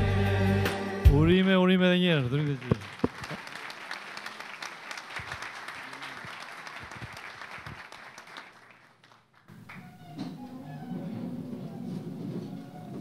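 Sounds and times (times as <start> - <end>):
audience applauding: 2.2 - 9.9.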